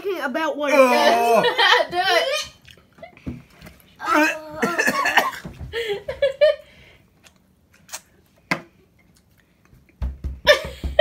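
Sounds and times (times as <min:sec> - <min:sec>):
man gagging groans: 0:00.7 - 0:01.6, 0:04.0 - 0:05.1.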